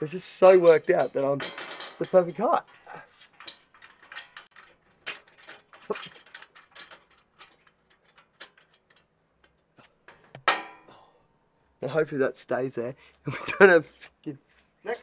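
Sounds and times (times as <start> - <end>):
small metal clicks: 0.5 - 10.8
metal knock: 10.1 - 10.9.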